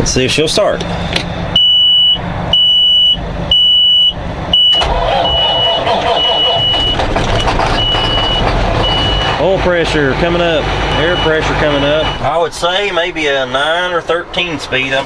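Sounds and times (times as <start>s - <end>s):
diesel truck engine starting and running: 0.0s - 15.0s
dashboard warning buzzer beeping: 1.6s - 7.0s.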